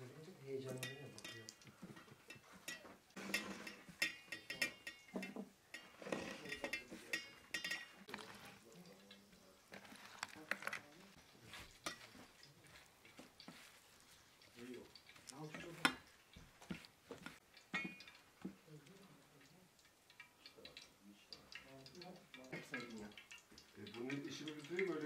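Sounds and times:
clinks against metal bowl: 0:00.6 - 0:08.2, 0:17.7 - 0:18.6, 0:21.5 - 0:25.0.

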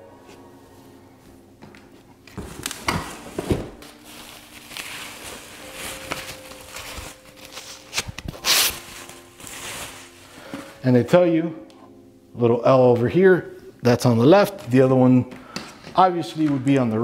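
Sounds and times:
bubble wrap crinkling: 0:02.3 - 0:11.0.

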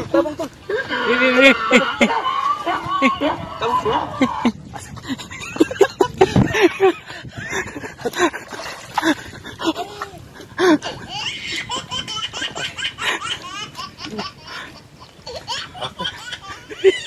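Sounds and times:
people laughing: 0:00.0 - 0:10.0, 0:15.4 - 0:17.0.

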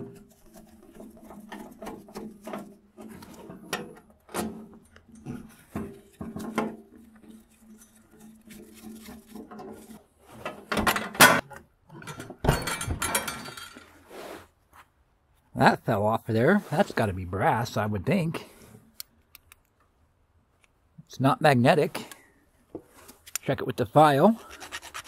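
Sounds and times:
metal parts clattering: 0:12.0 - 0:13.9
screwdriver scraping sheet metal: 0:24.4 - 0:25.0.

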